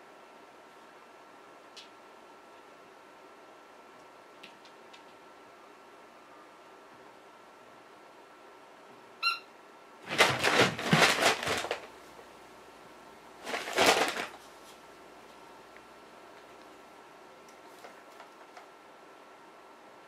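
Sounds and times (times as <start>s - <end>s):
squeaky dog toy squeak: 9.2s - 9.5s
paper bag crinkling and rustling: 10.0s - 12.1s, 13.4s - 14.8s.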